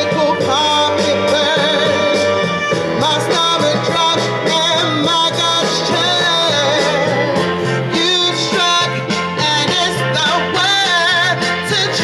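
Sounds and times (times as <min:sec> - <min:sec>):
backing track with bass line: 0:00.0 - 0:12.0
woman singing into a microphone: 0:05.9 - 0:07.6.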